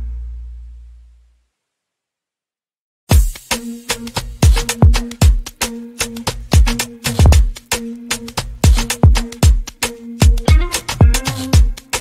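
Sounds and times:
low bass note: 0:00.0 - 0:01.3.

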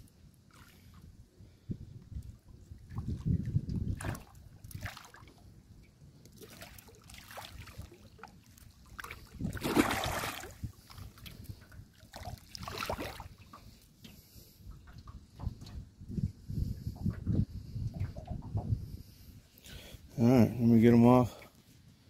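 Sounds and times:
tail slapping water: 0:02.8 - 0:05.4, 0:06.3 - 0:13.7
fish thrashing and splashing: 0:08.8 - 0:11.2.

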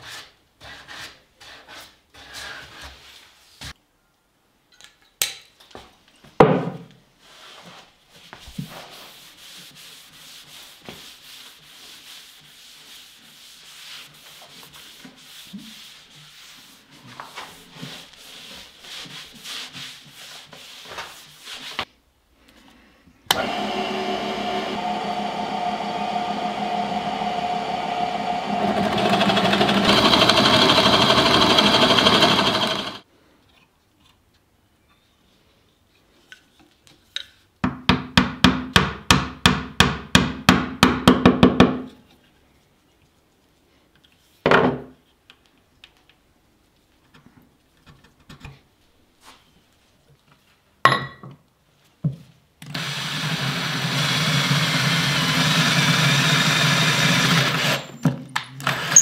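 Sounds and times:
small electric power tool running: 0:23.3 - 0:33.0, 0:52.8 - 0:58.0, 0:58.7 - 0:59.0.

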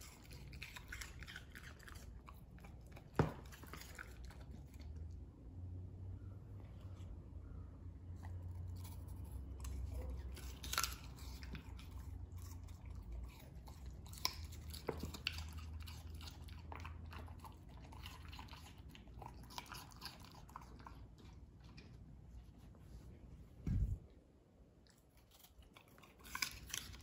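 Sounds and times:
dog chewing and crunching: 0:00.0 - 0:05.2, 0:08.2 - 0:22.3, 0:24.8 - 0:27.0.

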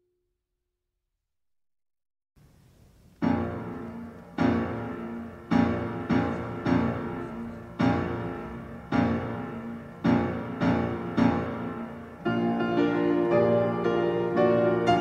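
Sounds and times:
piano chords ringing: 0:03.2 - 0:15.0.

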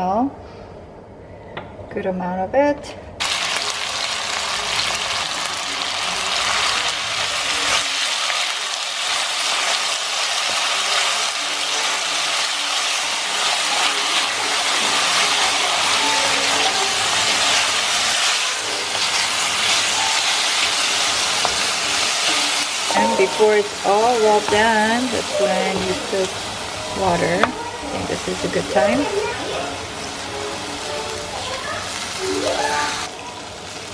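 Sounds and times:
meat sizzling in oil: 0:03.2 - 0:33.9.

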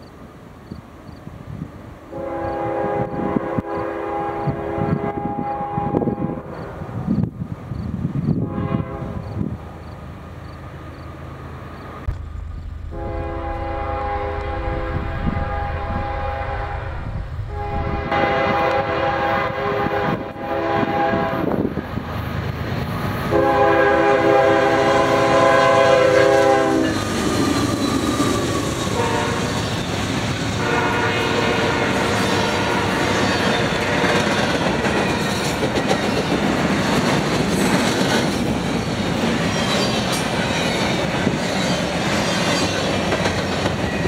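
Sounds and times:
locomotive air horn blasts: 0:02.1 - 0:06.5, 0:08.4 - 0:09.3, 0:12.9 - 0:21.6, 0:23.3 - 0:27.1, 0:28.9 - 0:29.7, 0:30.6 - 0:33.2
train wheels clacking over rail joints: 0:32.0 - 0:44.0.

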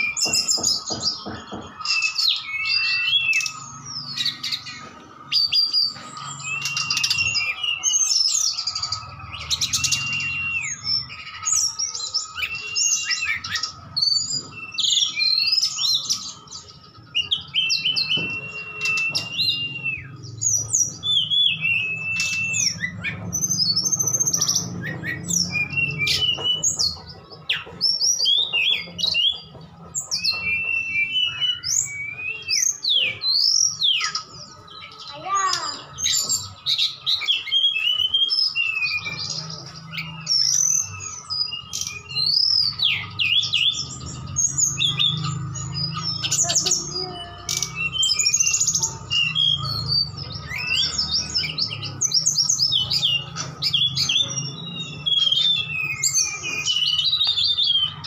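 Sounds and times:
birds singing chirps and trills: 0:00.0 - 0:58.0.

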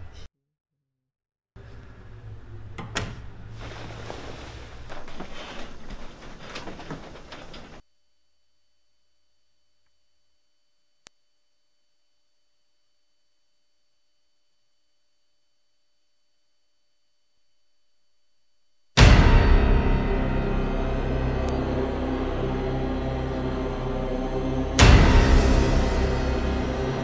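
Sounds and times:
high-pitched electronic tone: 0:04.9 - 0:19.8, 0:20.6 - 0:27.0.

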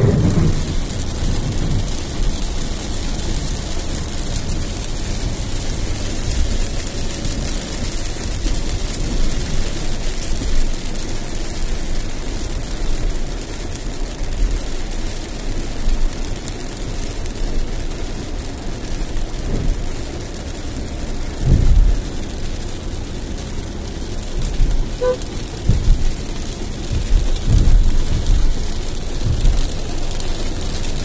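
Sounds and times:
heavy rain on a car: 0:00.0 - 0:31.0
road and engine rumble: 0:00.0 - 0:31.0.

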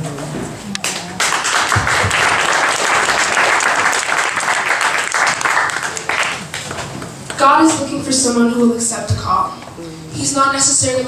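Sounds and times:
audience applauding: 0:00.8 - 0:07.1.

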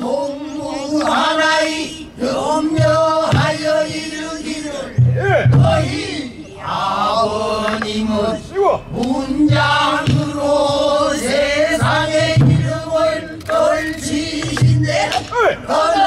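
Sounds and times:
barrel drum thuds: 0:02.8 - 0:03.6, 0:05.0 - 0:05.9, 0:09.5 - 0:10.8, 0:11.8 - 0:12.9.

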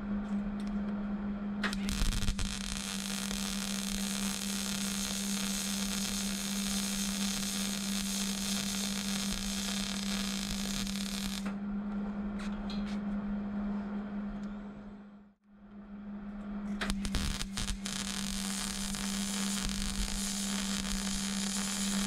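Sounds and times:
steady low hum: 0:00.0 - 0:22.0
welding arc crackling and hissing: 0:01.6 - 0:11.6, 0:16.8 - 0:22.0.

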